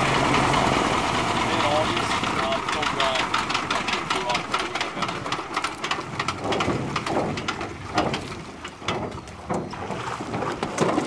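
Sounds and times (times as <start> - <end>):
engine winding down with clicks: 0.0 - 9.9.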